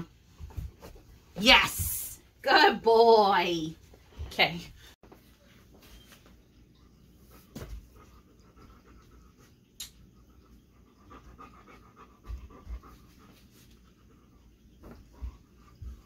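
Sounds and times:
dog panting: 7.8 - 16.0.

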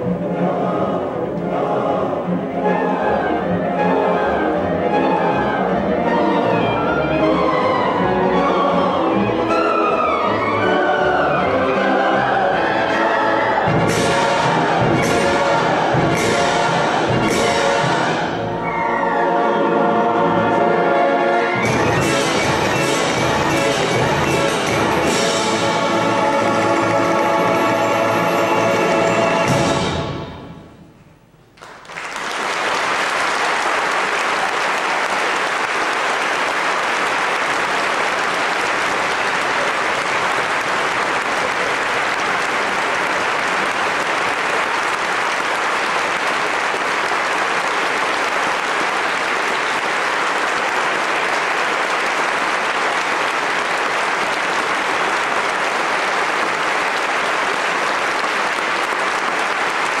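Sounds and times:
large audience applauding: 31.6 - 60.0.

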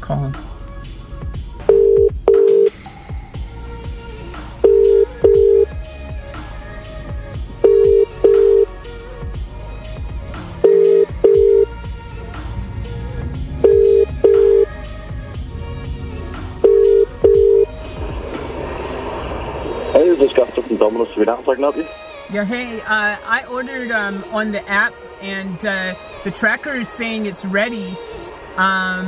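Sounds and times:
background music: 0.0 - 29.0
telephone ringback tone: 1.7 - 2.7, 4.6 - 5.8, 7.6 - 8.7, 10.6 - 11.7, 13.6 - 14.7, 16.6 - 17.7.

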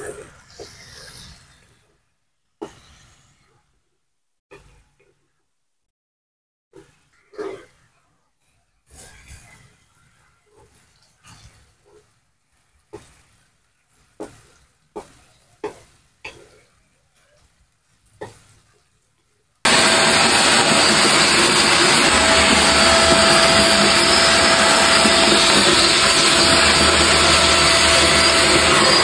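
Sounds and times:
vacuum cleaner running: 19.7 - 29.0.

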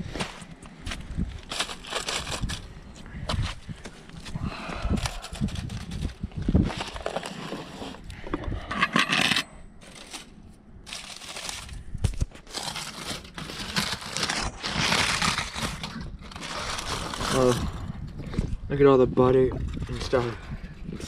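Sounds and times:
aluminium foil crinkling: 1.4 - 2.7, 9.8 - 17.8.

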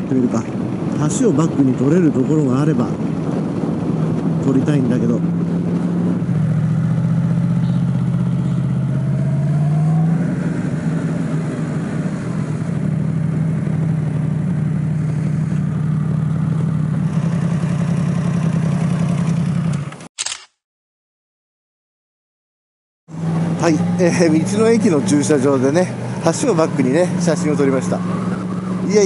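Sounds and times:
motorcycle engine idling: 6.8 - 8.9, 13.8 - 19.8.

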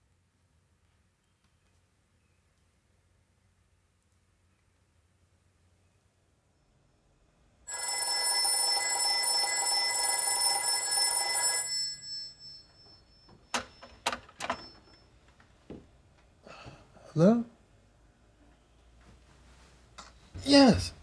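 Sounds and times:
telephone bell ringing: 7.7 - 15.1.

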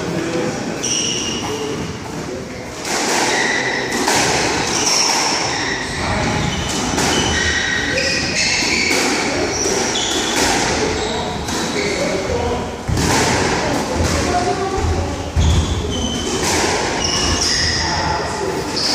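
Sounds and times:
sneakers squeaking on wooden floor: 0.8 - 2.0, 3.2 - 12.3, 14.0 - 18.1
squash ball thuds: 12.8 - 17.0.

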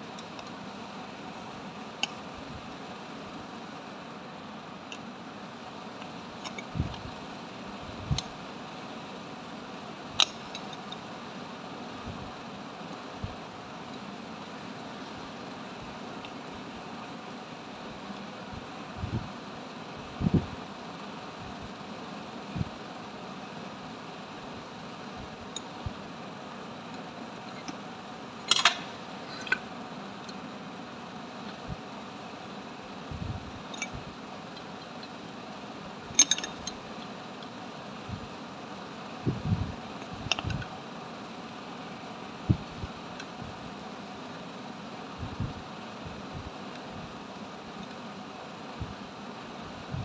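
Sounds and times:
steady background hiss: 0.0 - 50.0
steady background hum: 0.0 - 50.0
metal parts clinking: 28.4 - 29.6, 36.2 - 36.8
metal tool clicks and knocks: 28.5 - 28.8, 36.2 - 36.8.

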